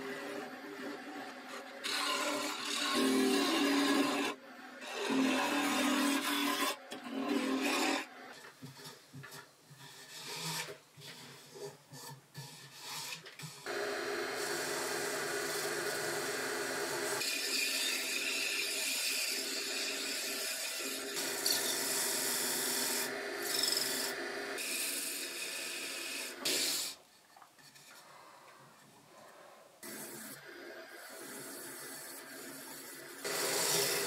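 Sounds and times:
lathe running: 13.7s - 22.0s.

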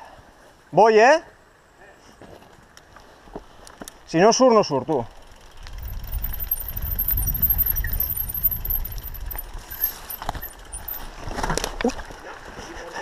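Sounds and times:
bike tyres rumbling on dirt: 5.0s - 13.0s
wind on microphone: 5.6s - 11.0s
faint high squeaks: 5.8s - 11.3s.

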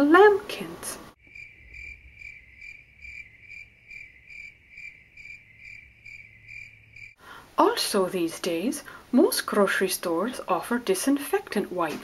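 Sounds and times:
crickets chirping: 1.2s - 7.2s.

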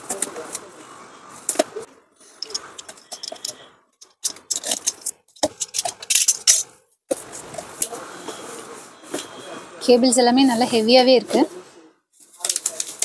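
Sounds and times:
bubble wrap and cardboard rustling: 12.2s - 13.0s.

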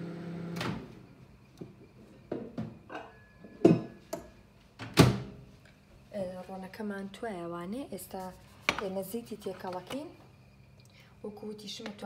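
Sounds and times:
dishes clinking and knocking: 2.3s - 4.4s.

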